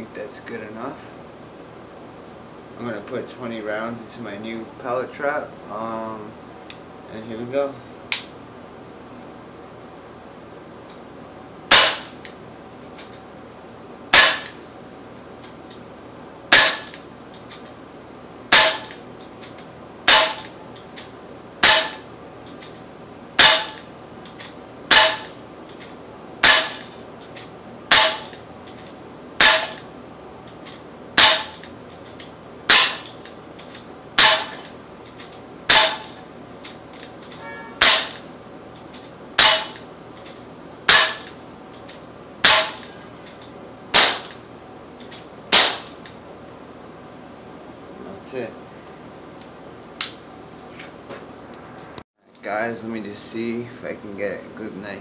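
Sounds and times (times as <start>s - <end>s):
pellet pistol firing: 11.7s - 12.2s, 14.2s - 14.6s, 16.5s - 17.0s, 18.5s - 19.0s, 20.1s - 20.6s, 21.6s - 22.1s, 23.4s - 23.9s, 24.9s - 25.4s, 26.4s - 26.9s, 27.9s - 28.4s, 29.4s - 29.9s, 31.2s - 31.7s, 32.7s - 33.1s, 34.2s - 34.7s, 35.7s - 36.1s, 37.8s - 38.2s, 39.4s - 39.8s, 42.4s - 42.9s, 44.0s - 44.3s, 45.5s - 45.9s.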